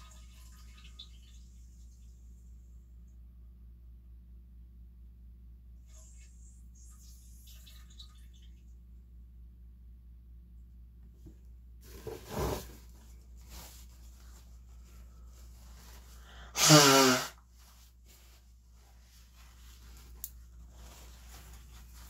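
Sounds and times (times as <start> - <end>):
person sneezing: 16.4 - 17.4.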